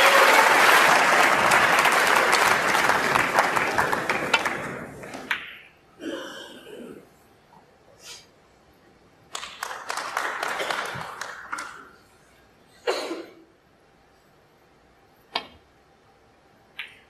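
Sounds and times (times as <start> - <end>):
audience applauding: 0.0 - 5.4, 9.3 - 12.0.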